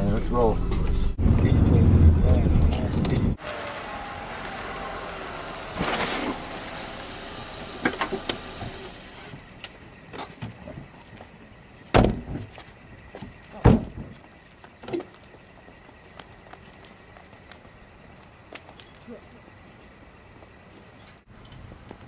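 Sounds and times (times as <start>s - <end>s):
car engine running: 3.4s - 9.5s
car doors slamming: 11.9s - 12.5s.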